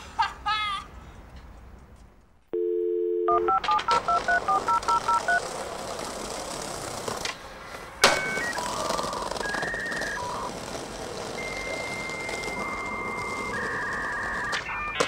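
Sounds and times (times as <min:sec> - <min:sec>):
telephone dial tone: 0:02.6 - 0:05.4, 0:11.3 - 0:15.0
touch-tone keypad beeps: 0:02.6 - 0:05.4, 0:11.4 - 0:15.0.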